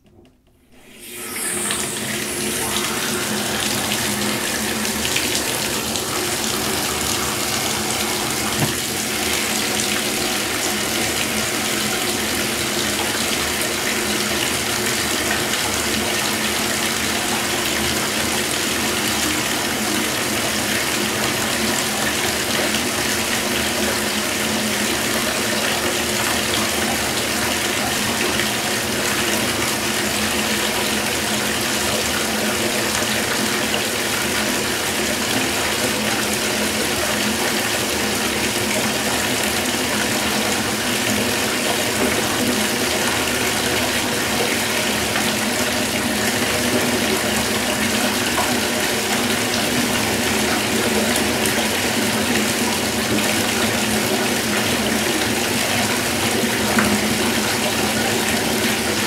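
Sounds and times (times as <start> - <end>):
faucet running into bathtub: 0.7 - 59.0.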